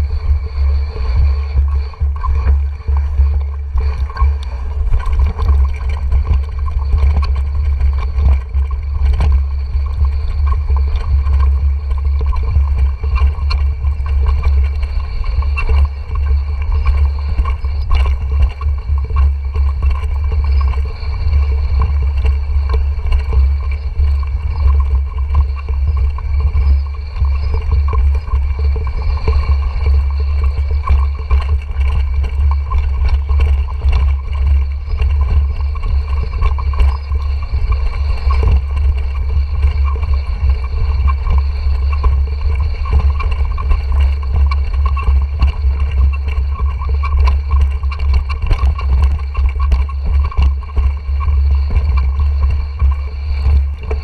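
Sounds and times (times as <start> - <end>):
wind rumble on microphone: 0.0 - 54.0
bike rattling and knocking: 1.9 - 20.8.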